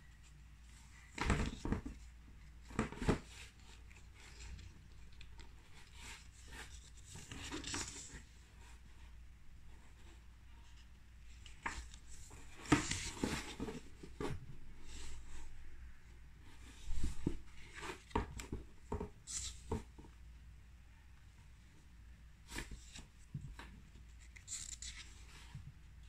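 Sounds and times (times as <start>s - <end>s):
sketchbook pages rustling: 0.2s - 9.1s, 9.8s - 15.4s, 22.5s - 25.7s.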